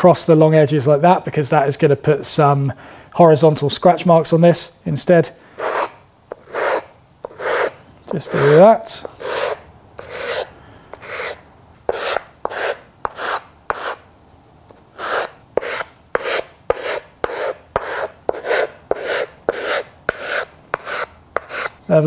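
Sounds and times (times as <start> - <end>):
sandpaper rasping on wood: 5.6 - 14.0, 15.0 - 21.8.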